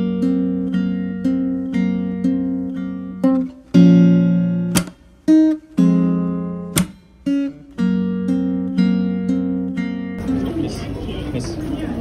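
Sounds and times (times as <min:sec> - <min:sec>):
acoustic guitar chords: 0:00.0 - 0:11.4
sharp percussive hit: 0:06.7 - 0:07.2.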